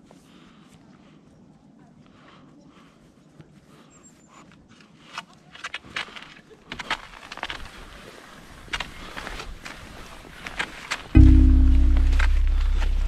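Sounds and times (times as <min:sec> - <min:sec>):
low rumble: 0:11.2 - 0:13.0.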